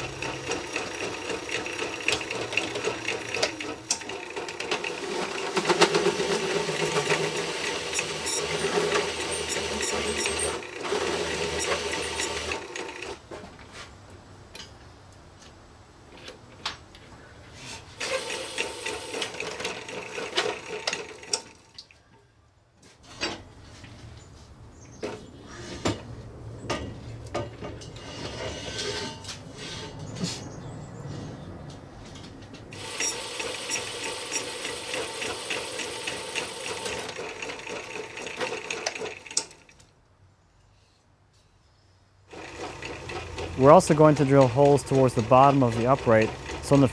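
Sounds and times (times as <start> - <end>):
drill press cutting steel: 0.0 - 13.0, 18.0 - 21.5, 32.8 - 39.5, 42.3 - 46.9
clicks and scraping: 25.0 - 30.5.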